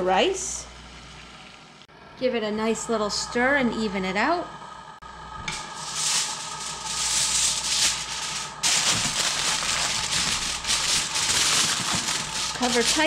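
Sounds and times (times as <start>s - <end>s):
aluminium foil crinkling: 5.7s - 13.0s.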